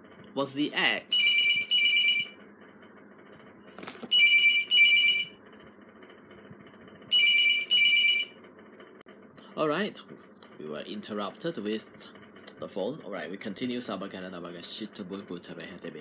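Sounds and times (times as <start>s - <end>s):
telephone ringing: 1.1s - 2.4s, 4.1s - 5.4s, 7.1s - 8.4s.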